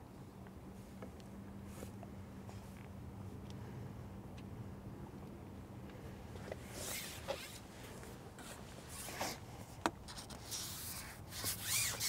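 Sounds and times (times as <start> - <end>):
fishing pole sliding through hands: 10.2 - 12.0.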